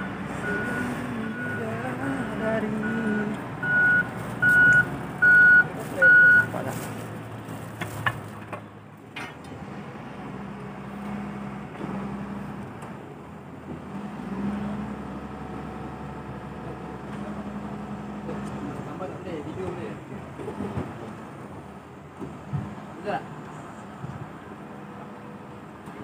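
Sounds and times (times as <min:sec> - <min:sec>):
heavy machine engine humming: 0:00.0 - 0:26.0
reversing alarm beeps: 0:02.8 - 0:06.5.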